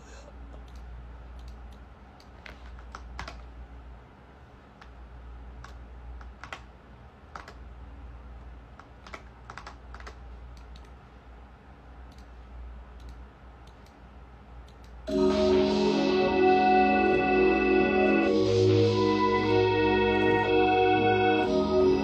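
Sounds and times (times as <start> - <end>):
steady low hum: 0.0 - 22.0
keyboard and mouse clicks: 0.6 - 3.5, 5.6 - 6.7, 7.3 - 7.6, 8.8 - 11.0, 12.1 - 12.3, 13.0 - 14.0, 14.6 - 15.0.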